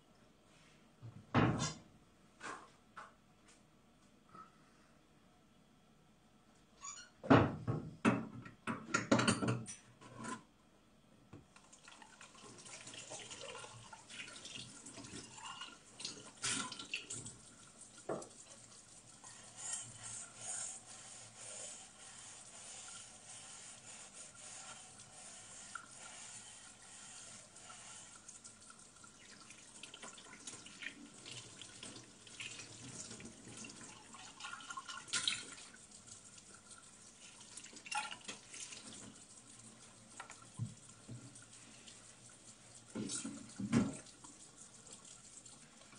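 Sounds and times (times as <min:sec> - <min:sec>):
dishes and glasses clinking: 0:08.8 - 0:10.2.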